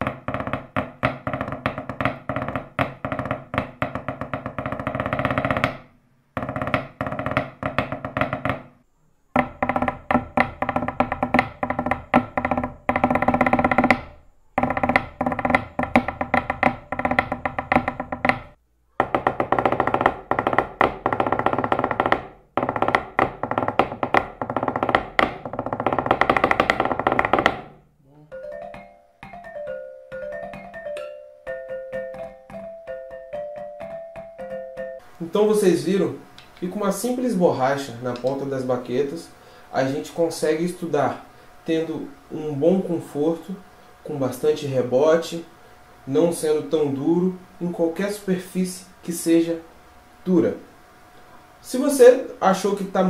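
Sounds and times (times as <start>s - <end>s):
drumsticks hitting wooden furniture: 0.0s - 8.8s, 9.4s - 27.8s.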